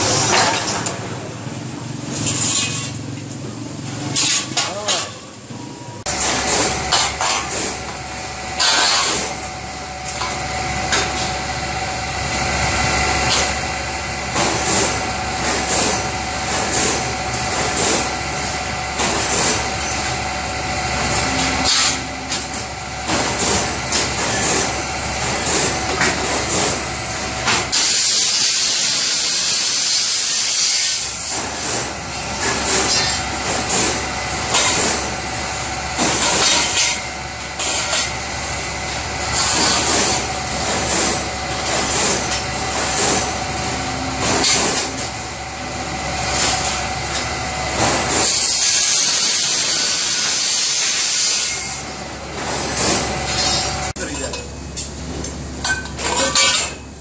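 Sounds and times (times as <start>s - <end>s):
machine hum: 5.3s - 56.1s
loud hiss: 27.7s - 31.2s.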